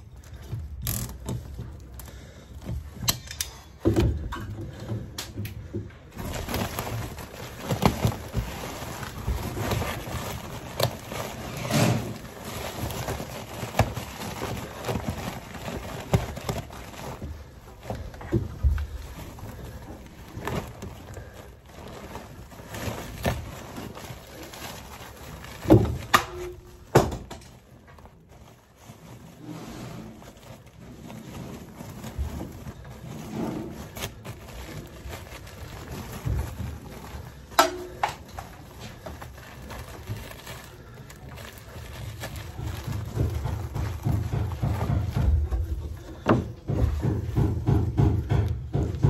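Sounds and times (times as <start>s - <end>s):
insulation rustling and crinkling: 0.0s - 49.0s.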